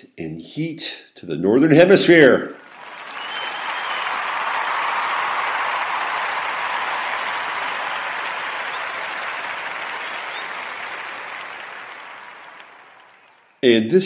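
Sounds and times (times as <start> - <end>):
crowd applauding: 2.6 - 13.5.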